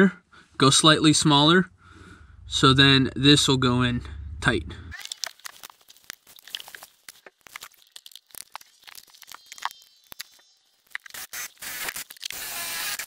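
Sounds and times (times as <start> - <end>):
sharp clicks of drill: 11.0 - 13.0.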